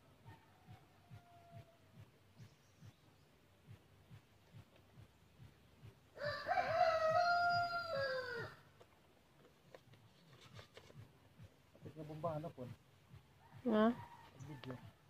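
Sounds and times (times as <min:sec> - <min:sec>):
rooster crowing: 0:00.2 - 0:02.0, 0:06.2 - 0:08.6.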